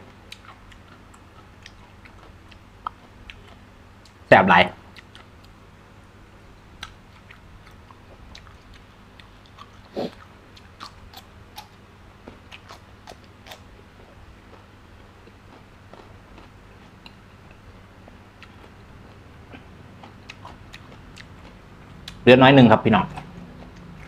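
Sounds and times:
person chewing and biting: 0:00.1 - 0:04.2, 0:04.9 - 0:05.6, 0:06.8 - 0:17.7, 0:18.4 - 0:22.2.

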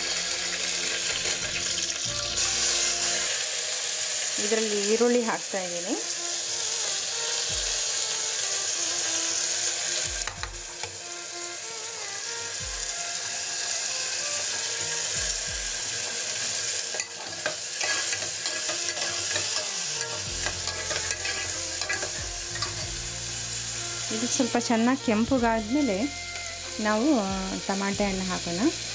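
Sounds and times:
onions sizzling in oil: 0:00.0 - 0:28.9
metal ladle scraping pot: 0:16.9 - 0:22.9.

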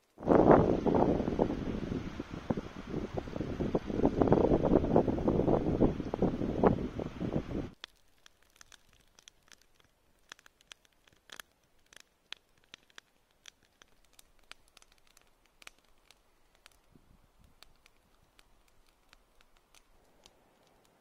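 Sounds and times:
campfire crackling and popping: 0:00.0 - 0:21.0.

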